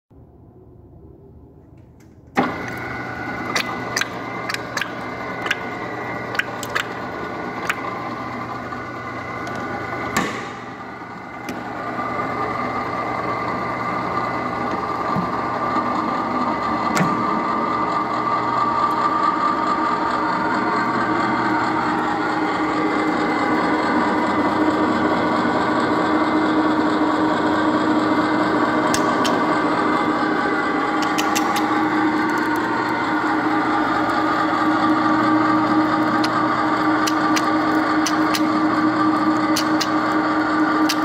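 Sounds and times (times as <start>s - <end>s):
threading machine running: 2.4s - 41.0s
sharp clicks: 31.0s - 31.8s, 37.0s - 38.5s, 39.5s - 40.0s.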